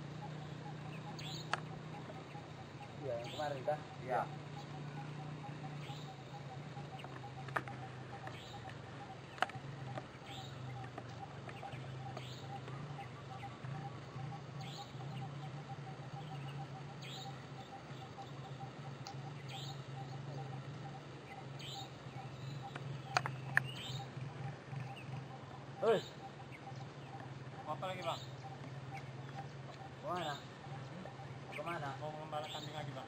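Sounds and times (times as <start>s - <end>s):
birds chirping: 0.0s - 33.0s
steady low hum: 0.0s - 33.0s
sharp clicks: 22.4s - 23.9s.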